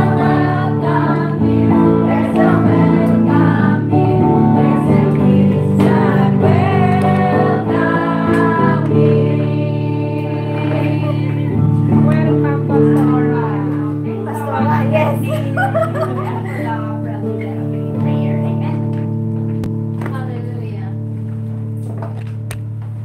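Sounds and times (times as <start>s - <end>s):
women singing together: 0.0s - 17.1s
instrumental accompaniment: 0.0s - 23.0s.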